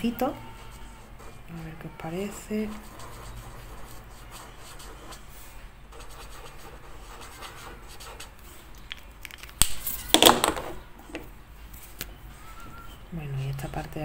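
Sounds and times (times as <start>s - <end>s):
marker tip rubbing on paper: 2.2s - 5.3s, 5.9s - 8.4s.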